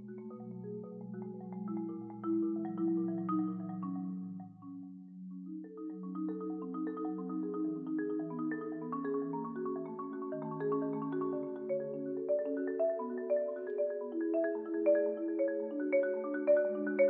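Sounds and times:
marimba played with mallets: 0.0 - 17.0.

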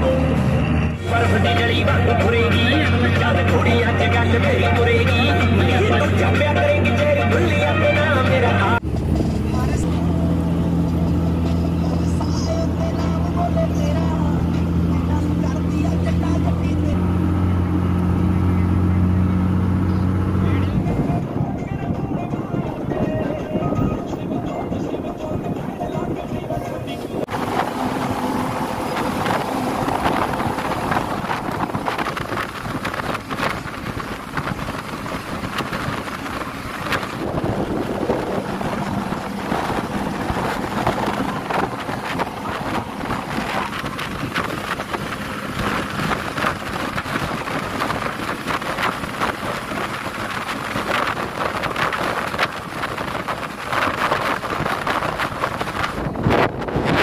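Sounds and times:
bus running and road noise: 0.0 - 57.0
wind buffeting microphone: 19.4 - 57.0.

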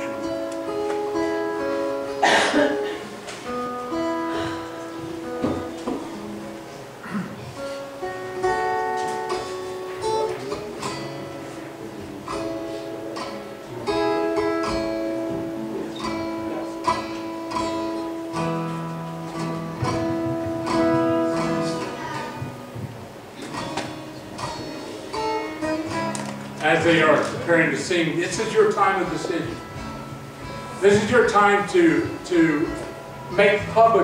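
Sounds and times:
guitar music: 0.0 - 34.0.

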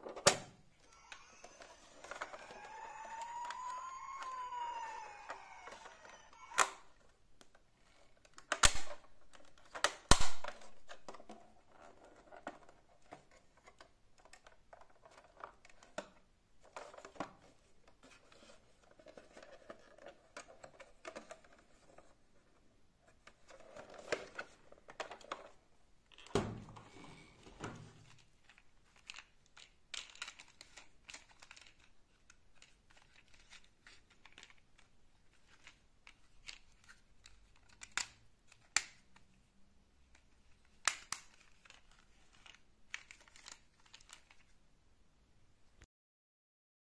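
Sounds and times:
plastic toys clicking and tapping: 0.1 - 22.2, 23.1 - 26.3, 28.0 - 39.4, 40.0 - 44.6.

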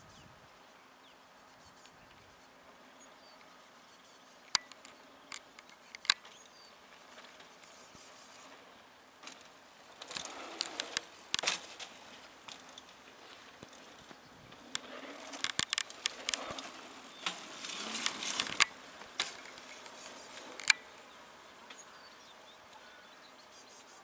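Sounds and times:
sharp clicks: 4.5 - 6.4, 14.7 - 20.8
bike rattling: 4.5 - 21.9
bike tyres scraping on dirt: 6.3 - 22.0.

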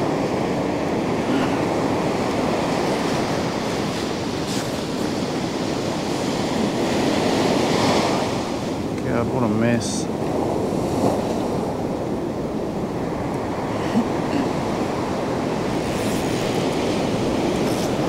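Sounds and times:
ocean surf breaking on beach: 0.0 - 18.0.

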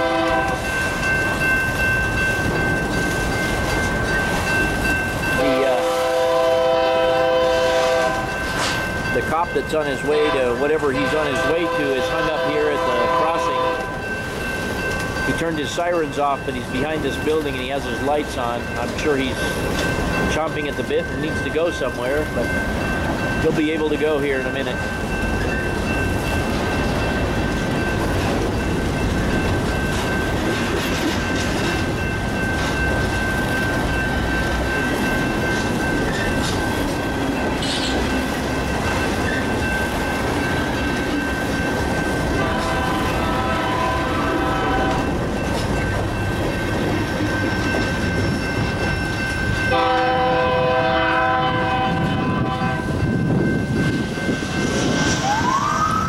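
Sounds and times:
train horn blasts: 0.0 - 0.7, 5.4 - 8.4, 10.3 - 14.0, 42.4 - 45.1, 49.7 - 52.9
train wheels clattering on rails: 0.0 - 55.4
crossing bell ringing: 0.0 - 56.0
siren rising: 54.9 - 56.0.

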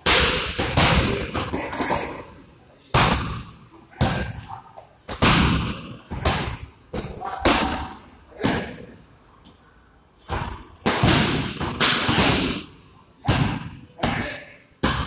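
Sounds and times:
kicks and punches on pads: 5.1 - 8.8, 10.3 - 12.7, 13.3 - 15.0.

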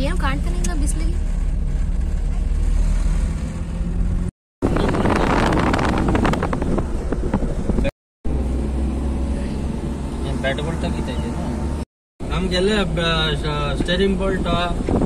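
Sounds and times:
moving car rumble: 0.0 - 15.0
wind buffeting microphone: 4.6 - 7.9, 13.7 - 15.0.

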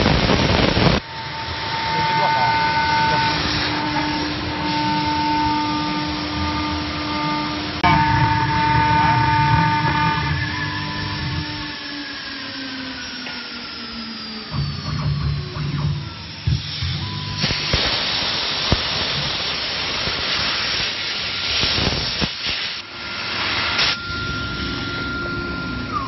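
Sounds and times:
spindle whining as it spins down: 0.4 - 17.7, 22.9 - 26.0
loud spraying hiss: 17.4 - 24.0.

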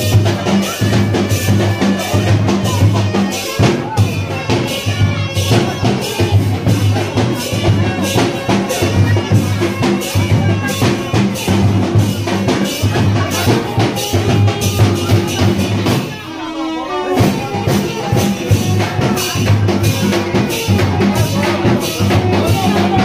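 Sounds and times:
music with drum beat: 0.0 - 23.0.

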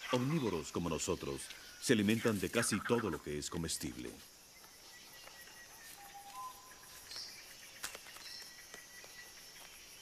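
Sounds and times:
insects trilling: 0.0 - 10.0
high chirp: 4.7 - 9.3.

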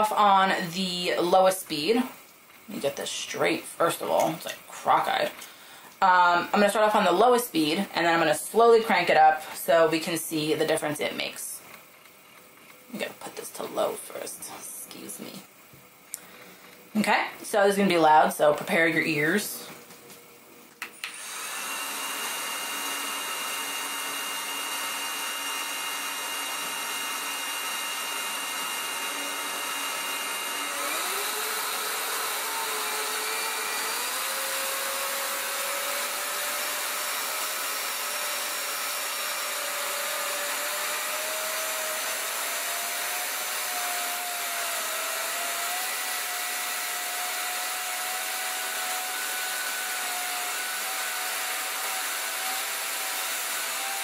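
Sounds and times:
electric air duster motor whine: 18.8 - 54.0.

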